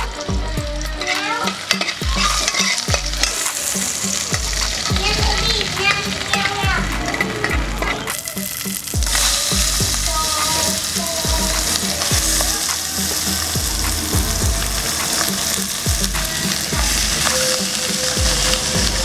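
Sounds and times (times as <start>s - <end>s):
regular low beat: 0.0s - 1.0s, 2.0s - 19.0s
chicken sizzling in a pot: 0.0s - 19.0s
metal ladle stirring: 0.9s - 13.5s.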